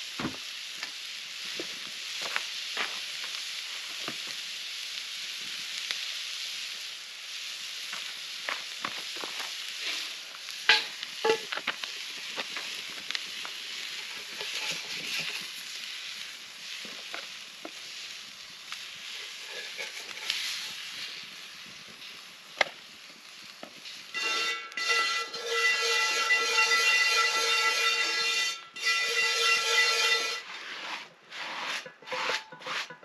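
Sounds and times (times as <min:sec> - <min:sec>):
food sizzling in skillet: 0:00.0 - 0:32.9
utensil scraping pan: 0:13.7 - 0:18.1, 0:18.8 - 0:21.2, 0:24.2 - 0:33.0
multi-tone whistle: 0:24.2 - 0:30.4.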